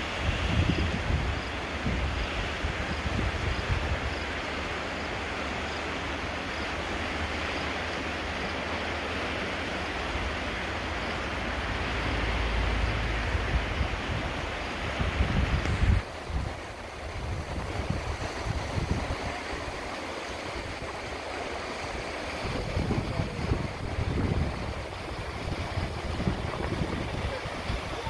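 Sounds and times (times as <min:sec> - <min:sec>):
wind buffeting microphone: 0:00.0 - 0:04.3, 0:13.1 - 0:28.0
whitewater river rushing: 0:00.0 - 0:28.0.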